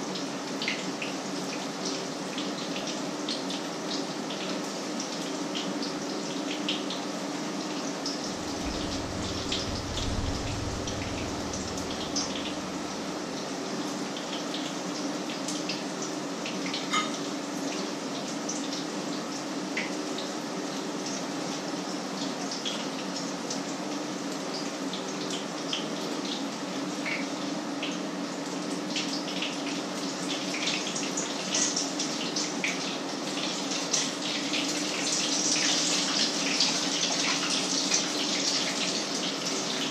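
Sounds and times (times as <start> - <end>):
steady low hum: 8.3 - 13.8.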